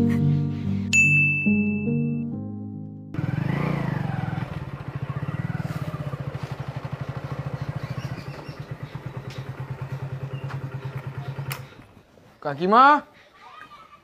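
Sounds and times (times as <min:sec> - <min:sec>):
motorcycle engine revving and idling: 0:03.2 - 0:12.1.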